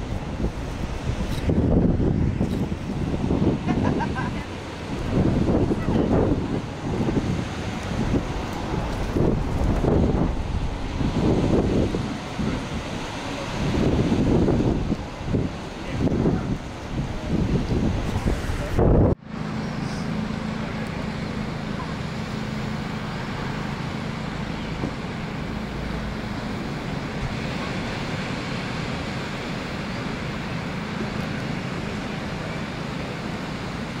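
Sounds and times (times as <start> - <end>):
wind on microphone: 0.0 - 20.2
ocean surf breaking: 0.0 - 34.0.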